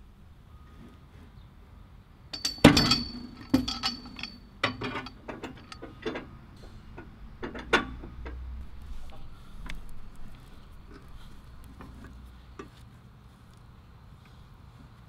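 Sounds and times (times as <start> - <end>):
metal clamp clanking: 2.4 - 10.3.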